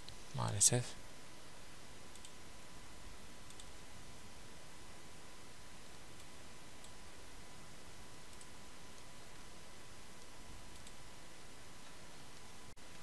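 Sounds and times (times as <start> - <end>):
microphone hiss: 0.0 - 13.0
computer mouse clicks: 2.1 - 2.4, 3.4 - 3.8, 8.3 - 9.1, 10.2 - 11.0.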